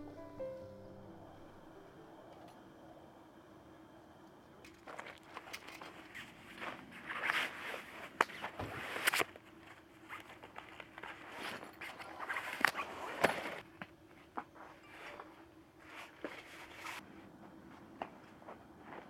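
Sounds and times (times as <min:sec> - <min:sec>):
foam sleeping mat rustling: 0:06.0 - 0:13.6.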